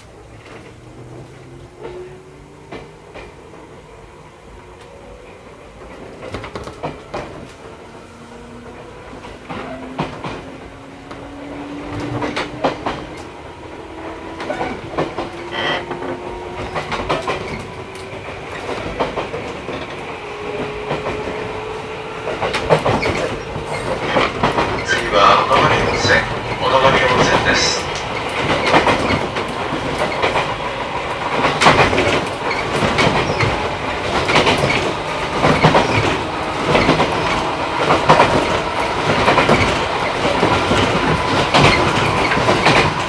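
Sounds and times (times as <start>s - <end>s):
train wheels clacking over rail joints: 5.8s - 7.8s, 8.6s - 43.0s.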